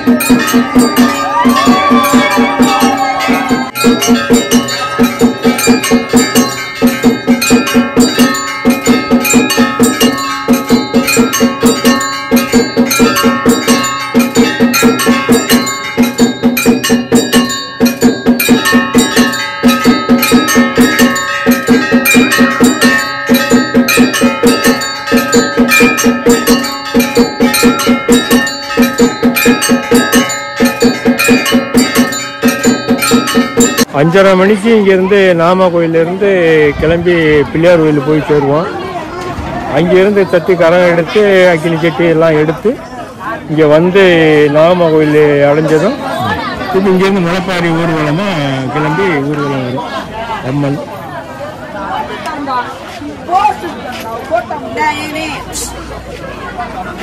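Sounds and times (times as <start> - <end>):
temple bells and drums: 0.0 - 38.7, 43.6 - 49.8.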